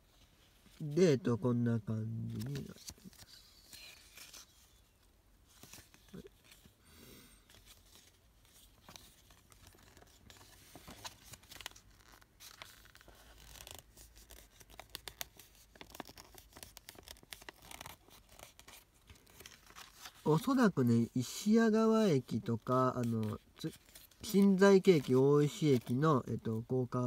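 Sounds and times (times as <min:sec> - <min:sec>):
paper leaflets rustling: 0:02.0 - 0:06.8, 0:07.4 - 0:21.0, 0:22.0 - 0:27.0.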